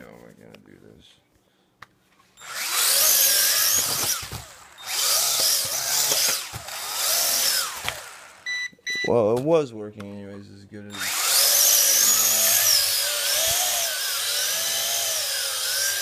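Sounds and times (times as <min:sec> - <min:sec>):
drone propellers whining: 0:02.4 - 0:08.4, 0:10.9 - 0:16.0.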